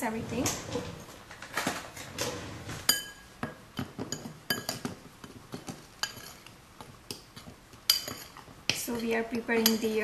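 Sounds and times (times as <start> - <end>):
metal spoon clinking in ceramic bowl: 2.9 - 6.5, 7.1 - 10.0.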